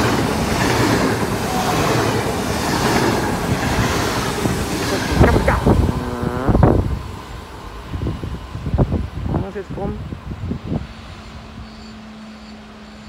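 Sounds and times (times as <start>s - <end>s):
electric train rushing past: 0.0s - 13.0s
low gusty thumps: 3.3s - 11.2s.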